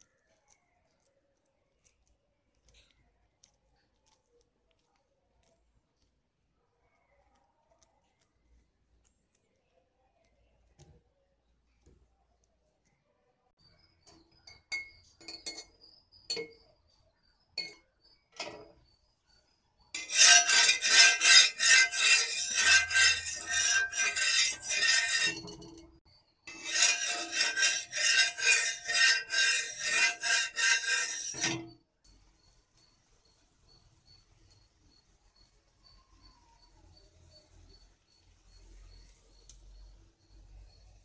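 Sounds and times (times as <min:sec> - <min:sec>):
light metal clinks: 0:14.0 - 0:16.8
metal utensil scraping griddle: 0:20.0 - 0:31.8.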